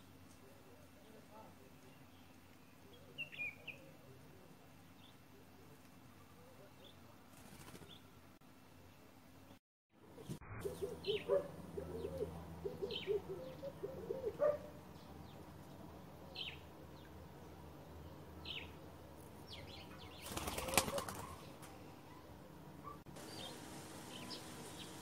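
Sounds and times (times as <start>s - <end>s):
wings flapping: 7.3s - 8.0s, 20.2s - 21.8s
dove cooing: 10.2s - 14.8s, 20.3s - 21.4s.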